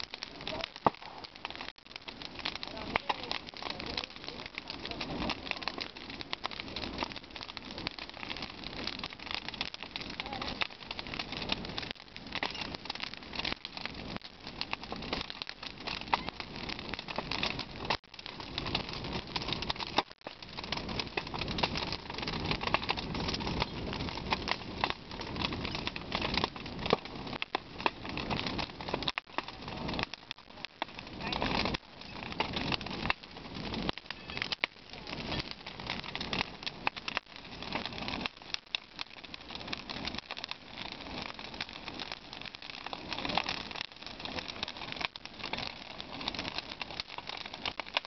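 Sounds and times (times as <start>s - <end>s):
bonfire crackling and popping: 0.0s - 48.0s.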